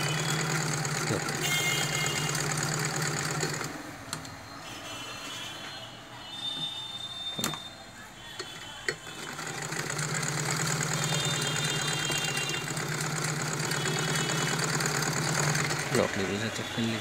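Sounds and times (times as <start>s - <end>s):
sewing machine running: 0.0s - 3.8s, 9.0s - 16.9s.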